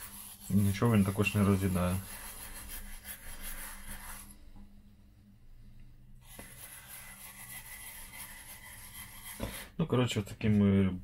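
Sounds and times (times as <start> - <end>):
toothbrush scrubbing a circuit board: 0.0 - 4.4, 6.2 - 9.7.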